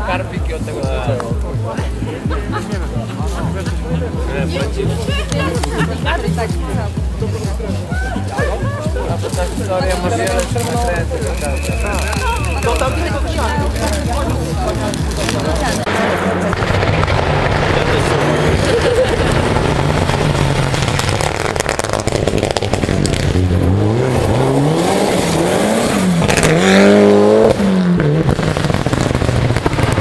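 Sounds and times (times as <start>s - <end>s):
rally car engine accelerating: 9.0s - 30.0s.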